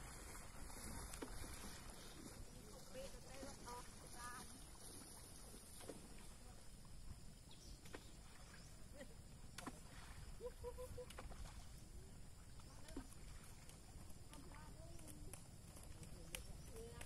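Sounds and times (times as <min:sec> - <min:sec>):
faint clicks: 0:12.5 - 0:17.0.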